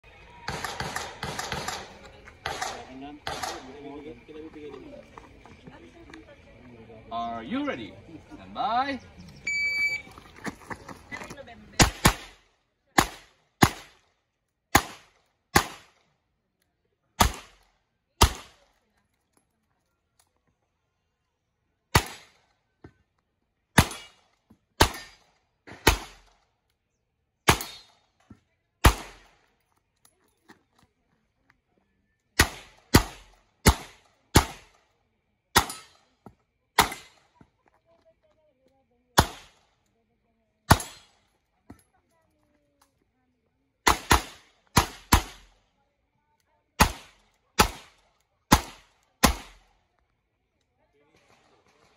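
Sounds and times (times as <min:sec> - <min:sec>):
revolver gunshots: 0:00.4 - 0:03.9, 0:11.8 - 0:12.4, 0:13.0 - 0:14.0, 0:14.7 - 0:16.0, 0:17.2 - 0:17.6, 0:18.2 - 0:18.6, 0:21.9 - 0:22.4, 0:23.8 - 0:24.2, 0:24.8 - 0:26.4, 0:27.4 - 0:28.0, 0:28.8 - 0:29.4, 0:32.4 - 0:34.8, 0:35.5 - 0:36.0, 0:36.8 - 0:37.2, 0:39.2 - 0:39.6, 0:40.7 - 0:41.2, 0:43.8 - 0:45.6, 0:46.8 - 0:49.7.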